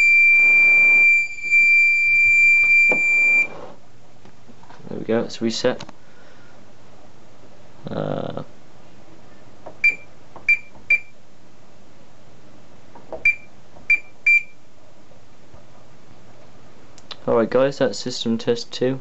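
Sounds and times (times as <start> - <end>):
keypad beeps: 9.8 - 11.1, 13.2 - 14.5.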